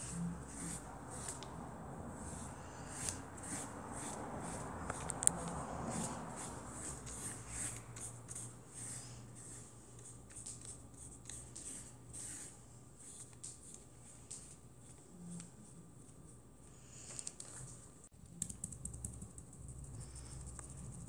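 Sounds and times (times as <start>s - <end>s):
paintbrush scratching on canvas: 0.0s - 1.6s, 2.2s - 13.8s.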